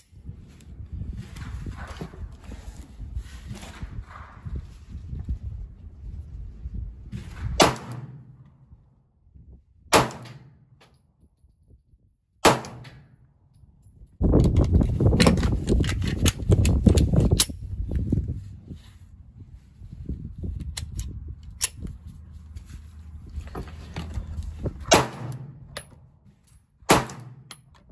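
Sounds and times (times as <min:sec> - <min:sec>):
loud rumbling rustling noise: 0:00.1 - 0:08.8, 0:14.2 - 0:27.4
pistol shots: 0:07.6 - 0:08.3, 0:09.9 - 0:10.6, 0:12.4 - 0:13.1, 0:24.9 - 0:25.6, 0:26.9 - 0:27.5.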